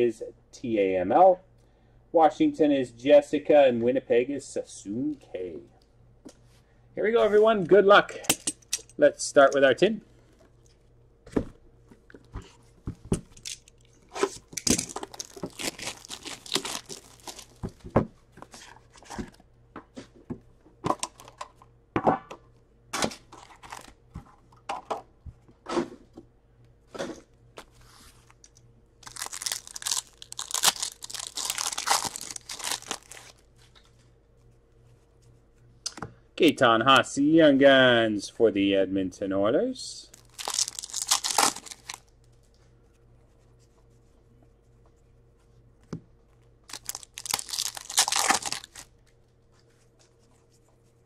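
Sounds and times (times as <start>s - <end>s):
wrappers tearing and crinkling: 13.4s - 17.6s, 23.3s - 24.0s, 28.3s - 33.5s, 40.1s - 42.1s, 46.7s - 49.1s
cards rustling: 13.4s - 17.7s, 27.6s - 34.0s, 40.2s - 42.5s, 46.7s - 48.9s.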